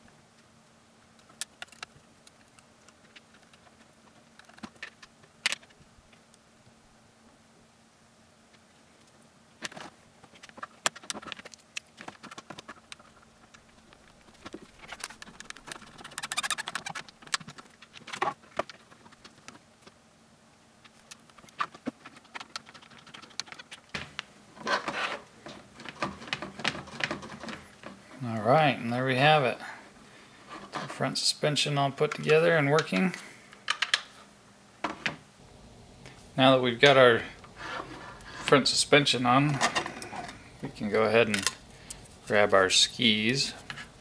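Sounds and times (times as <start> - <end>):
plastic parts rattling scrape: 9.6 - 19.6, 24.6 - 28.0.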